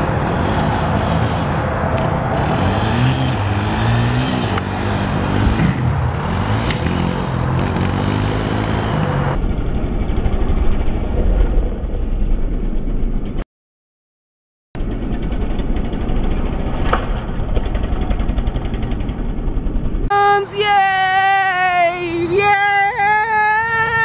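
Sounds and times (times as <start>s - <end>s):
dirt bike engine revving: 0.0s - 10.6s.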